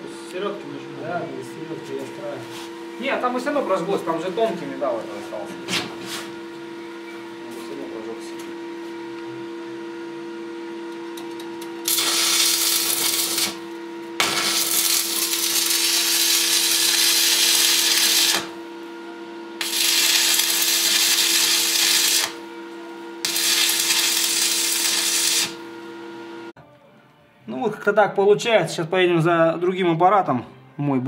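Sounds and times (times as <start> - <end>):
steady hum: 0.0 - 26.6
welding arc crackling and hissing: 11.8 - 18.6, 19.6 - 22.5, 23.2 - 25.7.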